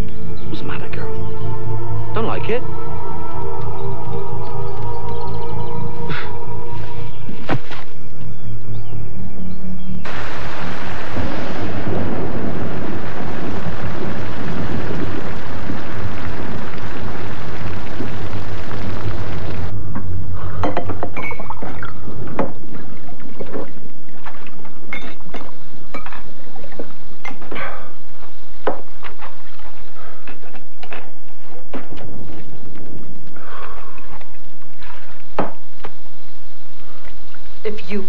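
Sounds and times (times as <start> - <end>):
rushing storm-like noise: 10.0 - 20.6.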